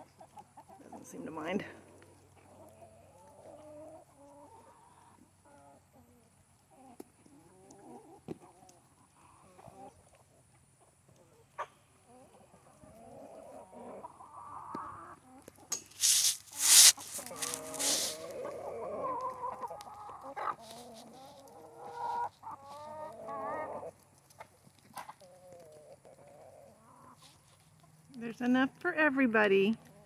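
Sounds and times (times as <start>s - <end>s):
chickens clucking: 0.0s - 1.2s, 1.8s - 28.1s
scratchy noise bursts: 15.9s - 18.3s
rising chicken calls: 16.0s - 23.9s.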